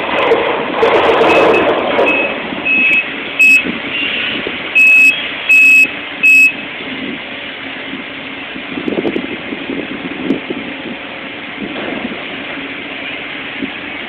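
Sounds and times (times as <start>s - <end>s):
excavator engine running: 0.0s - 14.0s
backup alarm beeping: 1.3s - 4.1s, 4.8s - 6.6s.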